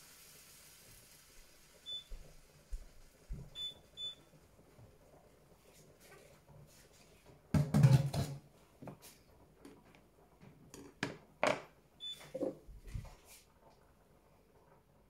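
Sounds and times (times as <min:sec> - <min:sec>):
kitchen utensils clattering: 0:07.6 - 0:08.4.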